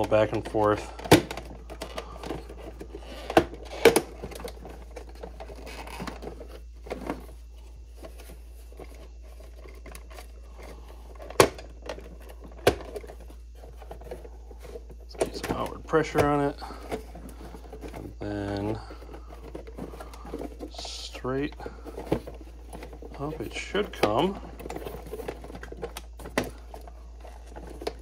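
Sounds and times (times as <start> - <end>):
plastic casing clicks and knocks: 0.0 - 7.3, 11.1 - 20.8
handling noise: 0.0 - 28.0.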